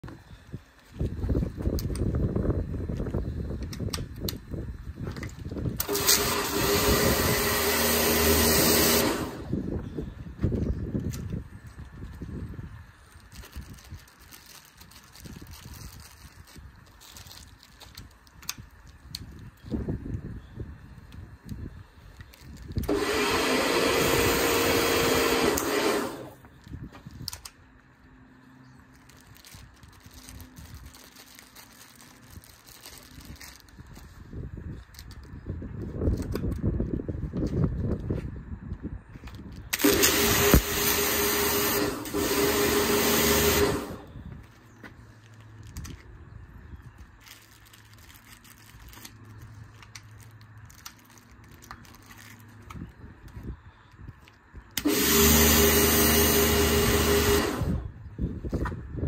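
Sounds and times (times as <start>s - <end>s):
nozzles clicking and rustling: 0.1s - 58.8s
pressure washer pump hum: 5.8s - 9.6s, 22.8s - 26.4s, 39.7s - 44.2s, 54.8s - 57.9s.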